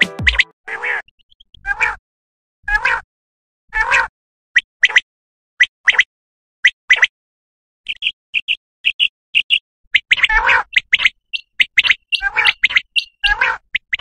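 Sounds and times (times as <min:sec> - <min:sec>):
quail calls: 0:08.0 - 0:14.0.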